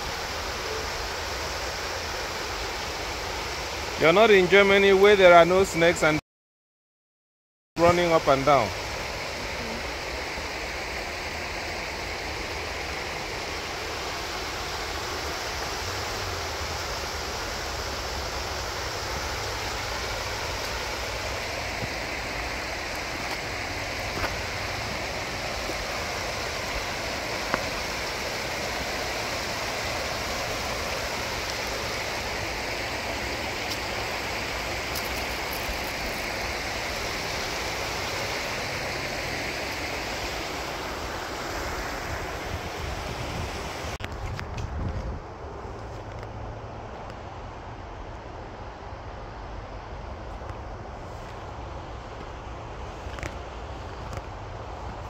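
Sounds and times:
stream rushing over stones: 0:00.0 - 0:06.2, 0:07.8 - 0:44.1.

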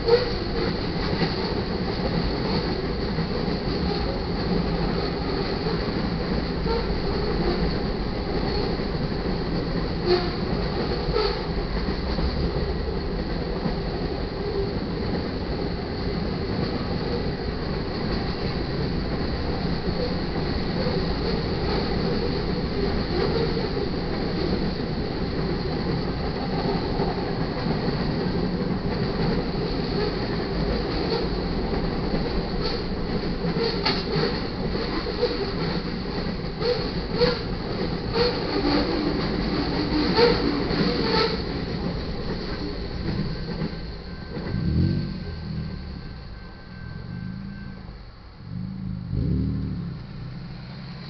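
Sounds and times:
steel wheels rumbling on rails: 0:00.0 - 0:51.0
wheels clunking over rail joints: 0:00.0 - 0:51.0.

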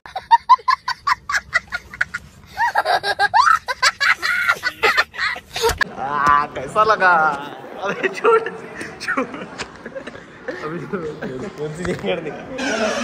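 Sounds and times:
person laughing: 0:00.1 - 0:05.9.

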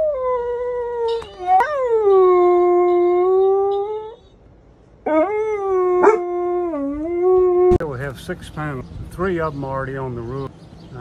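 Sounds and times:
dog howling: 0:05.1 - 0:07.8.

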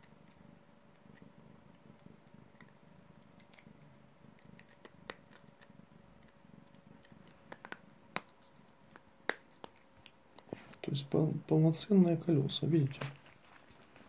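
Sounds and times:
cat crunching tablets: 0:00.0 - 0:10.8.

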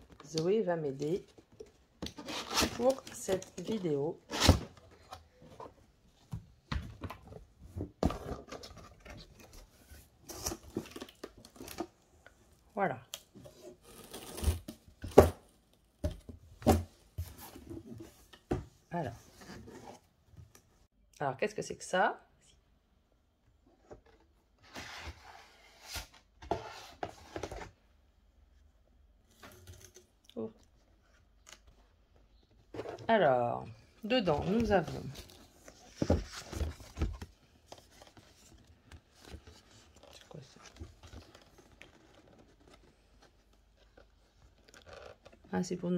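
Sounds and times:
card packaging scraping and rustling: 0:02.0 - 0:05.3.

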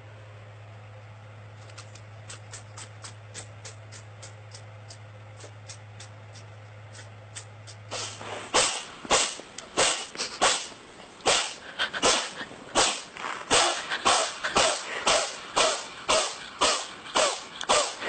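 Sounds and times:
low hum: 0:00.0 - 0:18.0
cat sneezing: 0:07.9 - 0:18.0.

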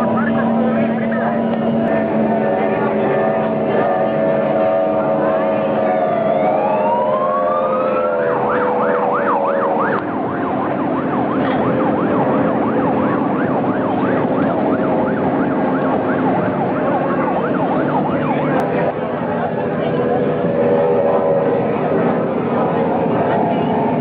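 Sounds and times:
siren wailing and yelping: 0:00.0 - 0:01.9, 0:04.5 - 0:18.6
steady droning tones: 0:00.0 - 0:24.0.

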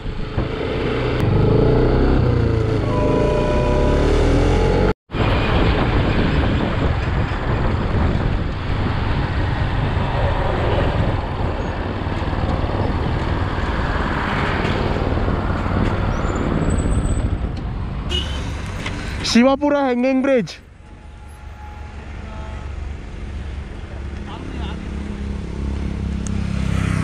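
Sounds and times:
motorcycle engine and road rumble: 0:00.0 - 0:19.3
passing traffic: 0:00.0 - 0:27.0
wind on microphone: 0:05.1 - 0:18.0.

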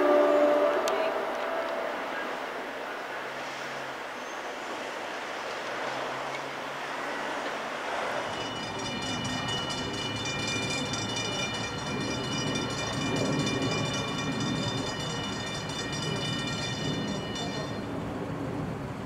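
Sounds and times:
train rumbling: 0:00.0 - 0:19.0
crossing bell ringing rapidly: 0:08.2 - 0:18.0.

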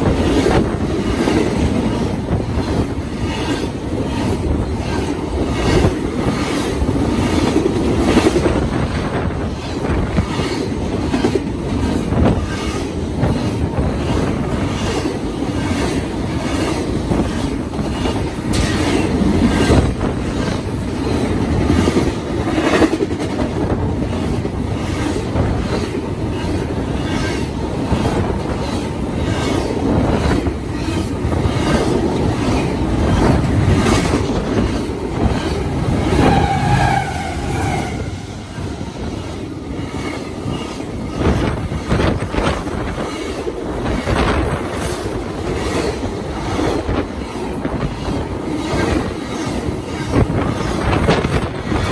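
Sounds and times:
steel wheels rumbling on rail: 0:00.0 - 0:51.9
wheel squeal: 0:36.0 - 0:38.0.

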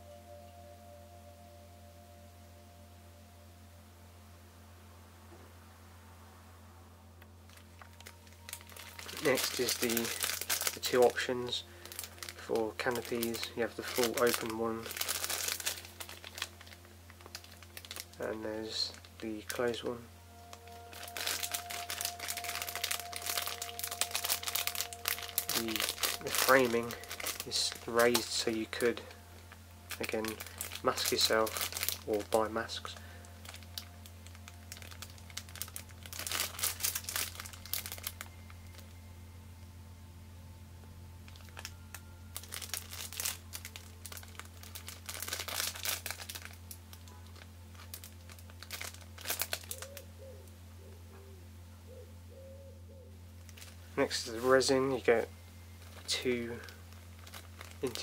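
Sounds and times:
plastic bag crinkling: 0:07.4 - 0:39.0, 0:41.2 - 0:50.1, 0:53.4 - 0:58.0.

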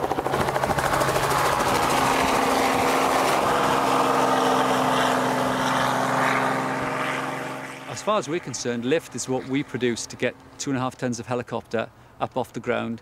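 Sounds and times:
helicopter rotor and engine: 0:00.0 - 0:10.6.

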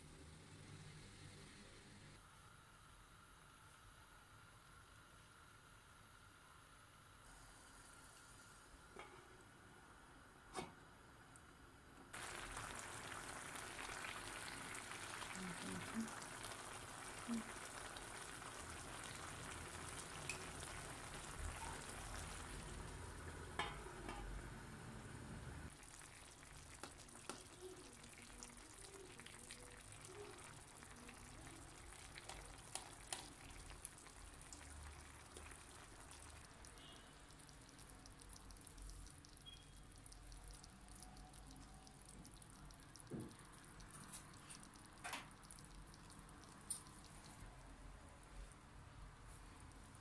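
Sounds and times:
stew simmering with sizzling pops: 0:11.4 - 0:50.0.

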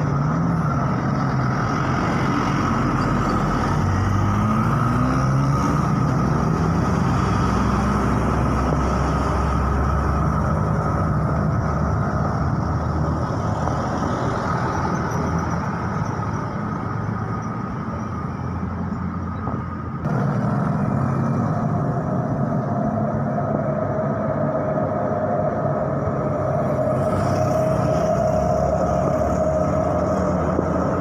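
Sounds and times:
truck engine: 0:00.0 - 0:31.0
tyre and road noise: 0:00.0 - 0:31.0
motorcycle engine: 0:20.0 - 0:23.2.

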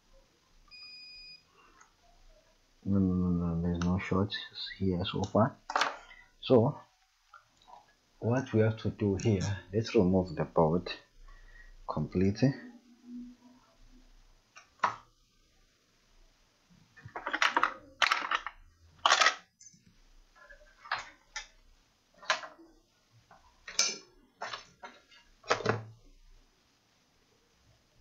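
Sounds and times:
tools clicking and clattering on bench: 0:17.0 - 0:19.5.

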